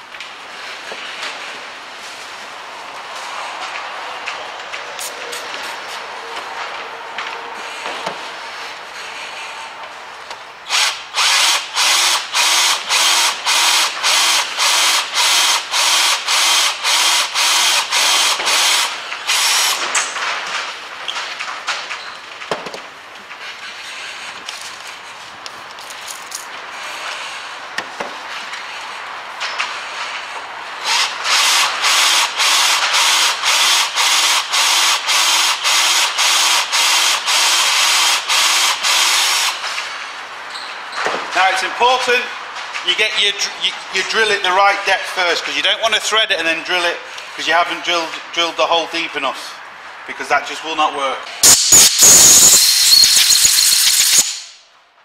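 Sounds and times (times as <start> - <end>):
cordless drill drilling into metal: 10.7 - 19.9, 30.8 - 39.6.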